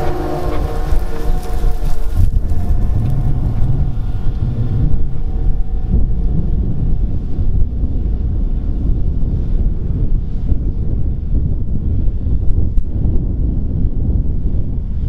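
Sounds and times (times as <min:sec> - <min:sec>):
tractor engine rumbling: 0:00.0 - 0:08.1
wind buffeting microphone: 0:00.0 - 0:15.0.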